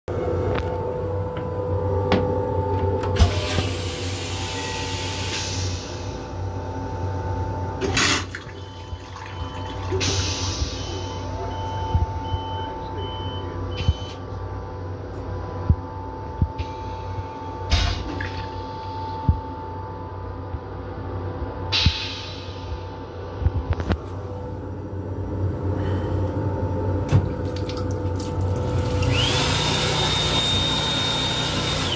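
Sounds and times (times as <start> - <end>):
electric railcar hum: 0.1 - 8.2, 18.6 - 27.1.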